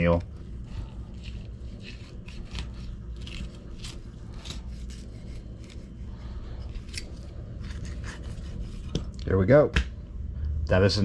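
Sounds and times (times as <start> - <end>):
low hum: 0.0 - 11.0
knife scraping fish: 0.6 - 6.0, 6.6 - 9.1.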